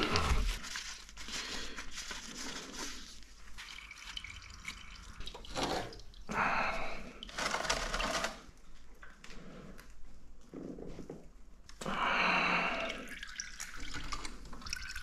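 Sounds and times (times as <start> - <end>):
oil pouring into a bucket: 2.4 - 8.3, 12.7 - 15.0.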